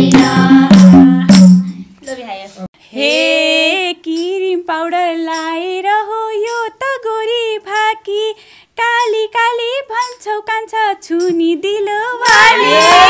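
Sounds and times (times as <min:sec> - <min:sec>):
high voice singing folk song: 0:11.0 - 0:13.0.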